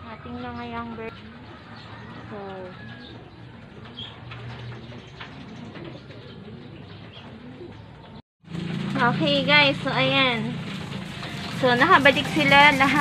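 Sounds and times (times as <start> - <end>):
pigeons cooing softly: 0.0 - 8.2.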